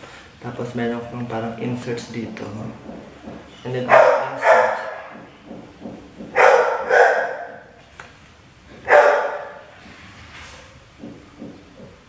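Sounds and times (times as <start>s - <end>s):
dog barking loudly: 3.8s - 5.6s, 6.2s - 7.8s, 8.8s - 9.7s.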